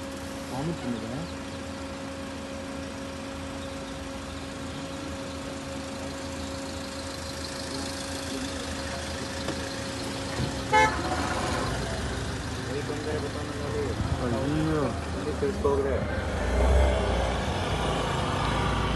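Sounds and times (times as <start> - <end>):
car engine humming: 0.0 - 18.9
car horn toot: 10.4 - 11.9.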